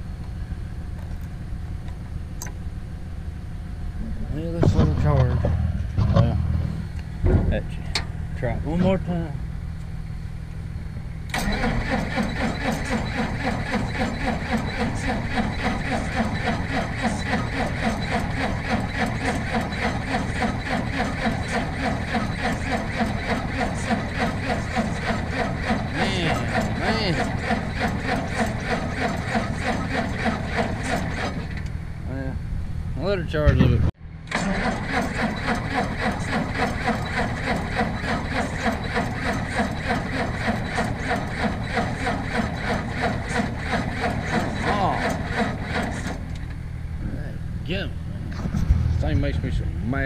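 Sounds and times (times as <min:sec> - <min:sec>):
diesel engine cranking on starter: 0:11.2 - 0:31.8, 0:34.2 - 0:46.7.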